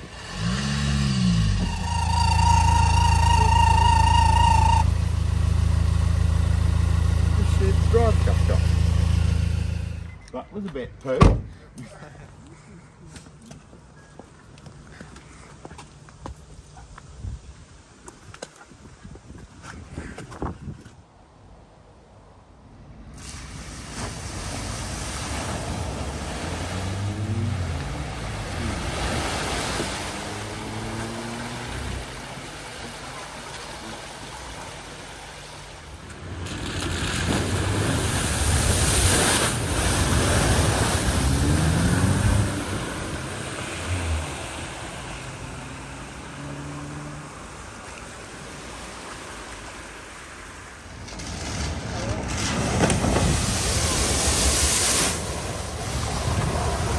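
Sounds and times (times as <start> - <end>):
water rushing and splashing: 0.0 - 10.1, 23.1 - 56.9
car engines revving: 0.0 - 10.2, 24.0 - 48.6.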